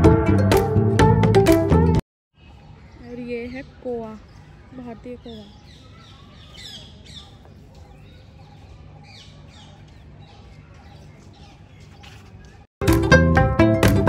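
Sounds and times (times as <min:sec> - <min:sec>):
small birds chirping: 0:02.3 - 0:12.7.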